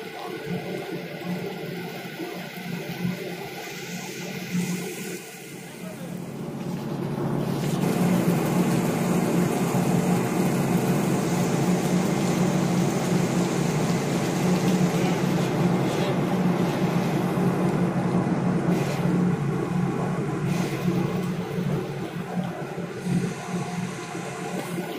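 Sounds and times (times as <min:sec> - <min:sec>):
ship engine drone: 0:00.0 - 0:24.9.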